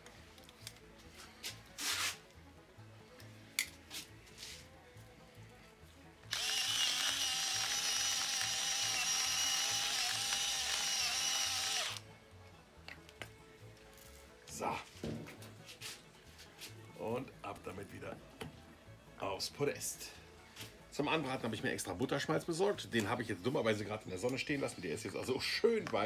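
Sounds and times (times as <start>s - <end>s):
electric salt mill grinding: 6.2s - 12.0s.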